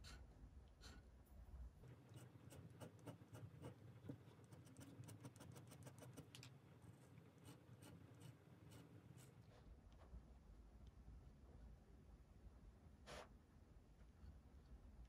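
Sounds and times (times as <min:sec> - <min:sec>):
dip pen nib scratching on paper: 0:02.1 - 0:06.4, 0:07.4 - 0:09.4.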